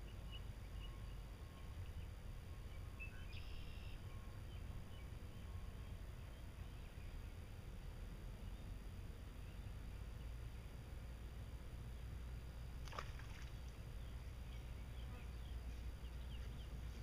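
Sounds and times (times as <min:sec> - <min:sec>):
bird chirps: 0:00.0 - 0:07.2
steady low rumble: 0:00.0 - 0:17.0.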